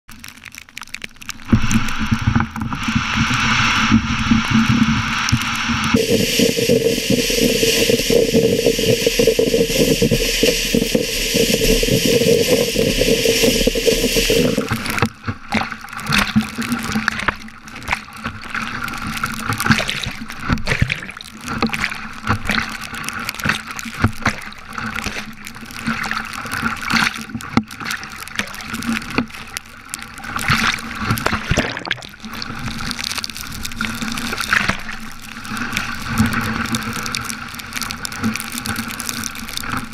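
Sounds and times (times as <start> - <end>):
water splashing against kayak: 0.1 - 39.9
steady hiss: 2.8 - 15.0.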